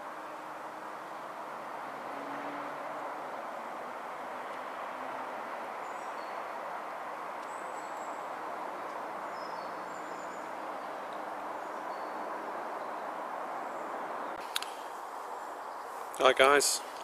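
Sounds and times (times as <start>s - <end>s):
road traffic hiss: 0.0s - 17.0s
small birds whistling calls: 7.4s - 8.4s, 9.2s - 16.2s.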